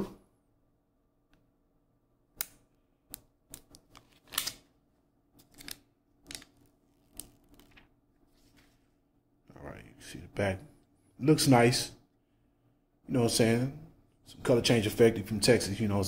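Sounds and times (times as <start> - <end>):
plastic film peeling crackles: 3.6 - 4.7.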